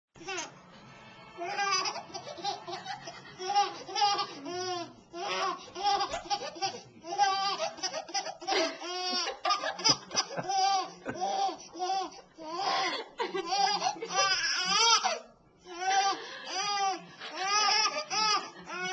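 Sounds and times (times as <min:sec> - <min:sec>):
baby giggling: 0:01.5 - 0:15.2.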